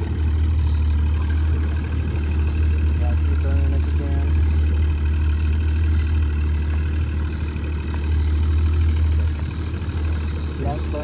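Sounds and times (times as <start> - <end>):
outboard motor running: 0.0 - 11.0.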